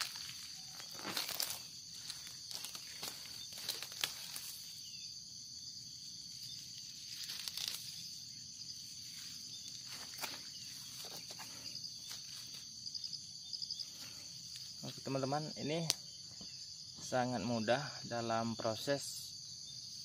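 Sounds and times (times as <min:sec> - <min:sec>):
grass roots tearing: 0:00.0 - 0:04.7, 0:06.5 - 0:08.2, 0:09.1 - 0:12.6
dry stems rustling: 0:00.0 - 0:04.9, 0:06.3 - 0:12.8
high-pitched insect chorus: 0:00.0 - 0:20.0.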